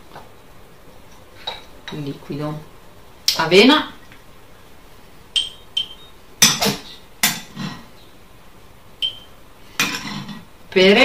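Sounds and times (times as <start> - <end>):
spoon clinking on glass jar: 5.4 - 6.6.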